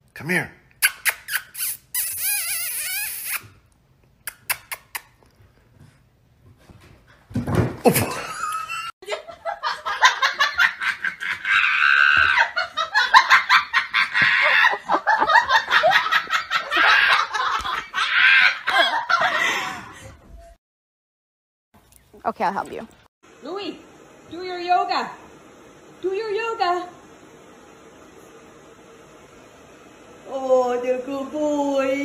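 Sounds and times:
person laughing hard: 7.8s - 20.0s.

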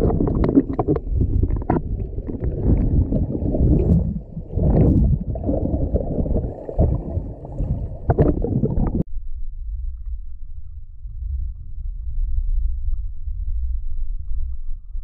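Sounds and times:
underwater bubbles gurgling: 0.0s - 9.0s
low underwater hum: 0.0s - 15.0s.

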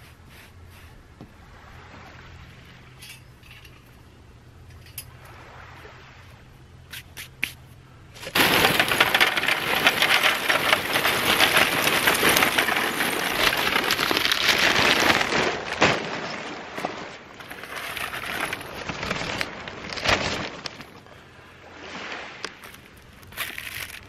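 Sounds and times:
charcoal clattering into metal: 8.2s - 20.5s.

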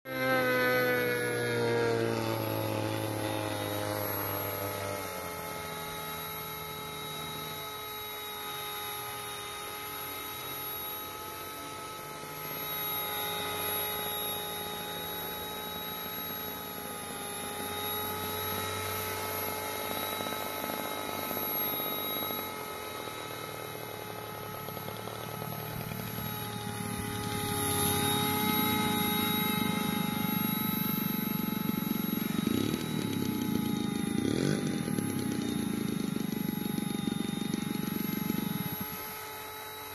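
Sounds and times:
model helicopter rotor whine: 0.1s - 39.9s.

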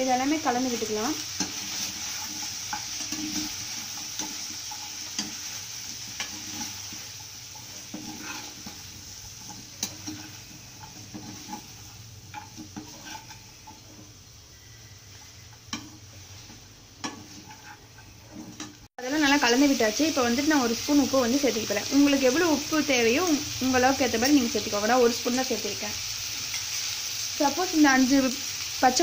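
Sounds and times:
food sizzling in pan: 0.0s - 29.0s
spatula scraping pan: 0.2s - 18.9s.

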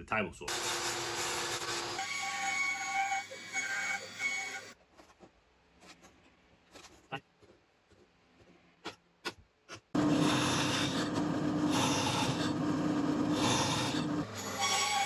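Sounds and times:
drill bit scraping through wood: 10.0s - 15.0s
drill press motor hum: 10.0s - 15.0s.

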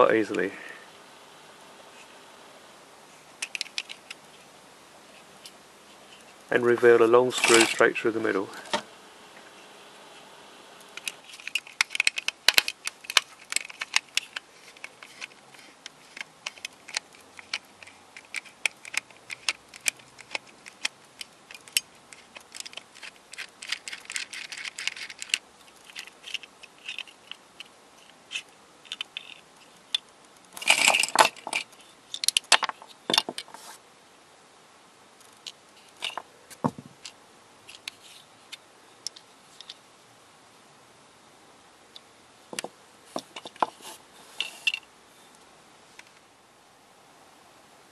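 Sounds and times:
screwdriver clicking and scraping plastic: 3.4s - 4.2s, 11.0s - 29.4s
plastic parts rattling: 3.4s - 4.4s, 7.3s - 8.8s, 10.9s - 33.6s, 35.3s - 38.2s, 42.6s - 44.8s.

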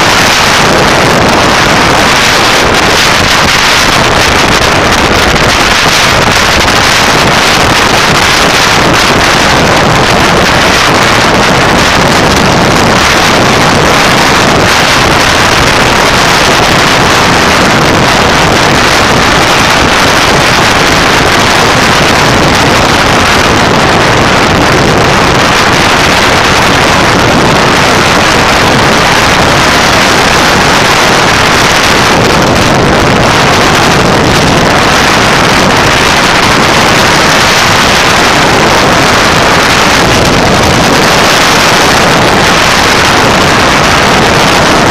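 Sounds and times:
road noise: 0.0s - 44.9s
wind rushing over microphone: 0.0s - 44.9s.

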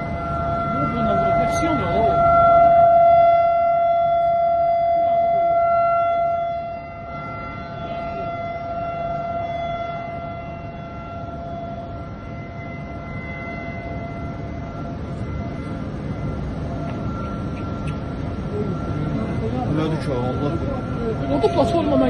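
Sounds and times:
steady alarm tone: 0.0s - 22.0s.

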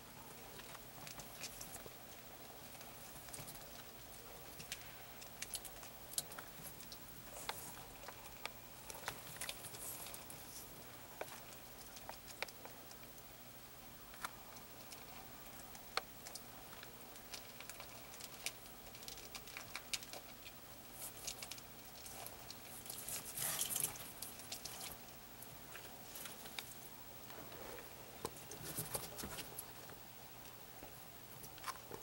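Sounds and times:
crackling rustle: 0.0s - 32.0s
lizard crunching an insect: 0.5s - 13.2s, 14.1s - 26.9s.

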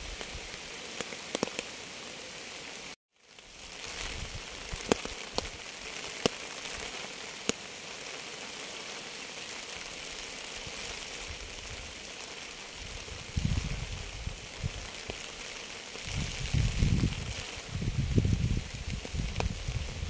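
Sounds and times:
steady rain hiss: 0.0s - 20.0s.

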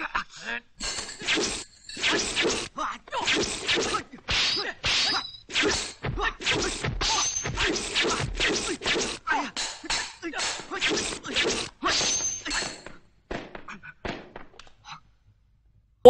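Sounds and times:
fighters shouting and grunting: 1.2s - 14.1s
punch and kick impacts: 5.7s - 8.8s.

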